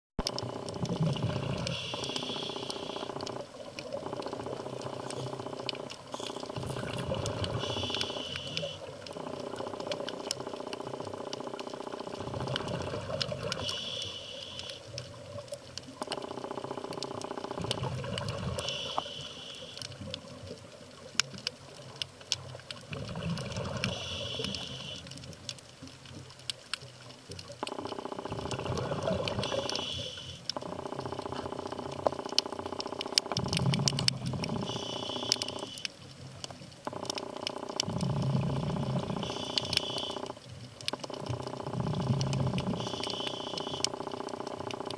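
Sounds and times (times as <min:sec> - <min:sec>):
sharp underwater clicks: 0:00.2 - 0:44.9
exhaled bubbles rushing: 0:00.3 - 0:01.9, 0:06.2 - 0:07.9, 0:12.1 - 0:13.7, 0:17.6 - 0:18.8, 0:28.2 - 0:29.7
diver breathing through regulator: 0:01.3 - 0:03.4, 0:06.1 - 0:08.9, 0:18.5 - 0:19.9, 0:23.7 - 0:25.1, 0:28.9 - 0:30.5.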